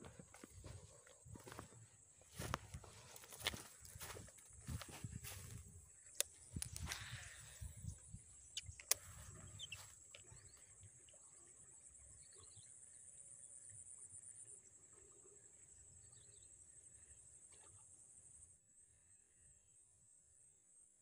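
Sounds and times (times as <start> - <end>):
insects trilling: 0.0 - 19.8
faint ticks: 3.4 - 11.2
sharp click: 8.6 - 9.0.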